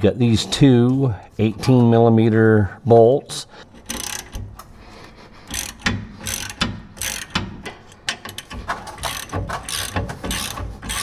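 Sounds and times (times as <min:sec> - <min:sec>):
hand ratchet clicking: 0:03.7 - 0:04.7, 0:05.4 - 0:11.0.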